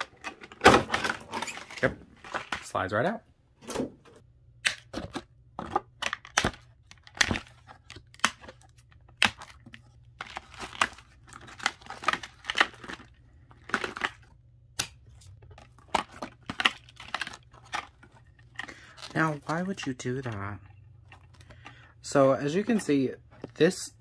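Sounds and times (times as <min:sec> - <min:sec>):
plastic packaging crinkling: 0:09.4 - 0:14.3, 0:15.1 - 0:21.7.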